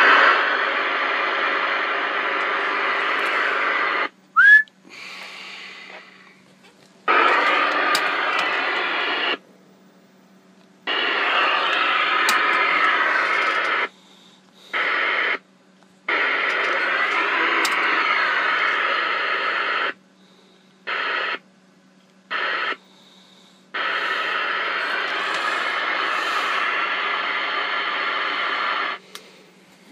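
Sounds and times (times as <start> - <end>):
hissy garbled radio bursts: 0.0 - 4.1, 7.1 - 9.4, 10.9 - 14.0, 14.7 - 15.4, 16.1 - 20.0, 20.9 - 21.4, 22.3 - 22.8, 23.7 - 29.0
faint steady hum: 0.0 - 29.9.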